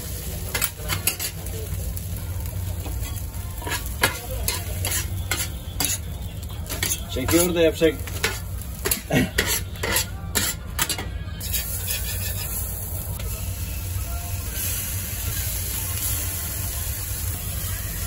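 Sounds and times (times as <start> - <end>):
sausage sizzling: 0.0 - 18.0
metal spatula scraping griddle: 0.5 - 1.5, 2.8 - 13.1.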